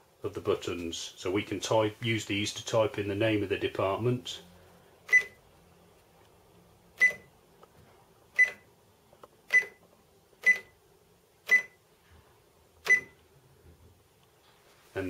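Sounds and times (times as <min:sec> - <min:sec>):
cash register key beeps: 0:05.1 - 0:05.4, 0:07.0 - 0:07.3, 0:08.4 - 0:08.6, 0:09.5 - 0:09.8, 0:10.4 - 0:10.7, 0:11.5 - 0:11.8, 0:12.9 - 0:13.2.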